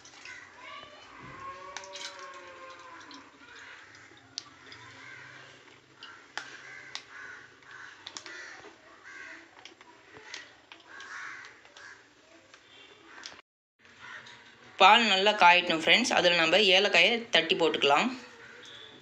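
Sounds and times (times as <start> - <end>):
crows cawing: 0.2 - 0.6, 1.2 - 9.5, 10.1 - 12.1, 13.1 - 14.4, 18.4 - 18.9.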